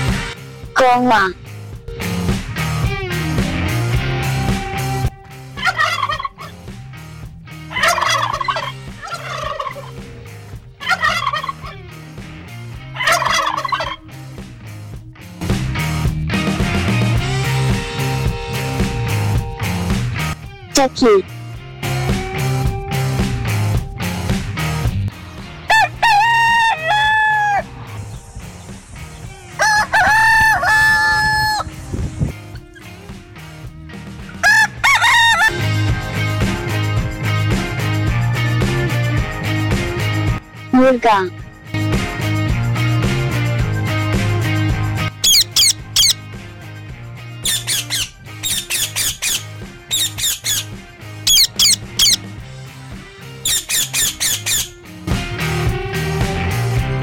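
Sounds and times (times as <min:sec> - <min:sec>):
turkey gobbling: 0:05.6 - 0:06.6, 0:07.7 - 0:10.0, 0:10.8 - 0:11.8, 0:13.0 - 0:14.0, 0:25.7 - 0:27.6, 0:29.6 - 0:31.7, 0:34.3 - 0:35.5, 0:45.2 - 0:46.2, 0:47.4 - 0:50.7, 0:51.3 - 0:52.2, 0:53.5 - 0:54.7
rooster crowing: 0:25.7 - 0:27.7, 0:29.5 - 0:31.7, 0:34.4 - 0:35.5.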